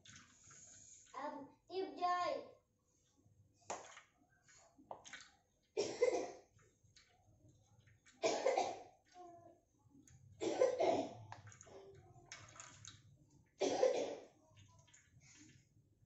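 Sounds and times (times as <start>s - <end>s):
loud coughs: 5.8s - 6.4s, 8.2s - 8.9s, 10.4s - 11.2s, 13.6s - 14.3s.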